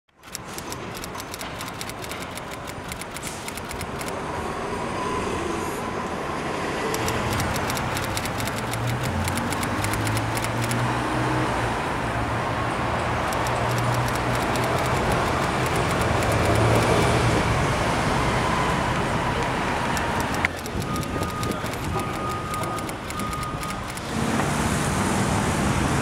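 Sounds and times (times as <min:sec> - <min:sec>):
typewriter clicks: 0:00.1 - 0:04.1, 0:07.0 - 0:10.8, 0:13.2 - 0:17.1, 0:19.8 - 0:24.0.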